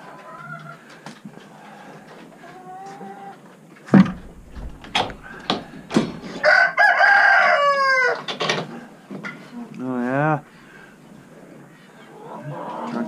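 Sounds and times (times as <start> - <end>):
chickens clucking: 0.0 - 6.6, 7.8 - 13.0
sharp knocks: 4.0 - 6.4
rooster crowing: 5.1 - 8.3.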